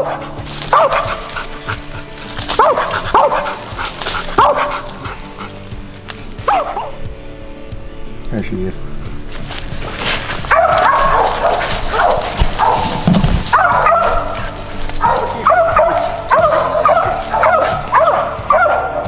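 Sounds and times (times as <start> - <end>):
dog barking: 0.0 - 5.7, 6.4 - 7.0, 10.3 - 19.0
background music: 0.0 - 19.0.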